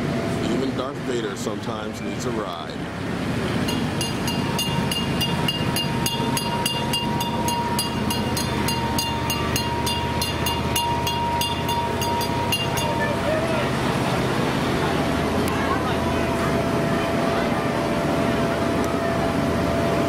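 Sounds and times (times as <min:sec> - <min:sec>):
thin steady whine: 0:00.0 - 0:20.0
small train motor running: 0:03.6 - 0:20.0
metallic bell ringing: 0:03.7 - 0:13.5.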